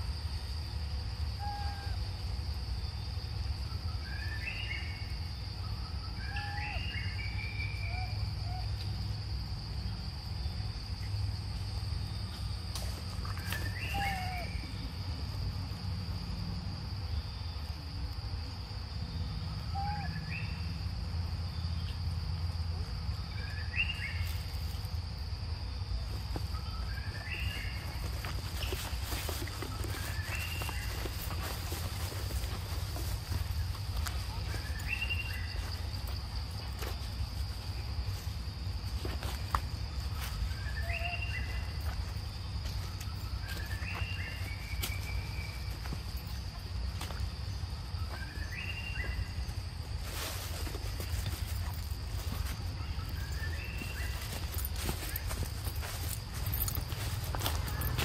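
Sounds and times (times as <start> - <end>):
night insects droning: 0.0 - 58.0
footsteps in dry leaves: 12.4 - 14.5, 26.0 - 58.0.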